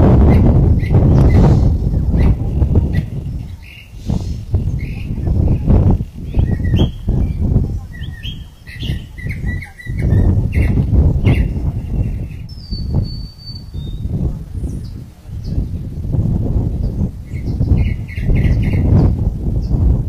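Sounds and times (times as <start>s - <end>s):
birds chirping: 0.0s - 20.0s
wind rumbling on microphone: 0.0s - 20.0s
whistled bird note: 6.3s - 14.1s.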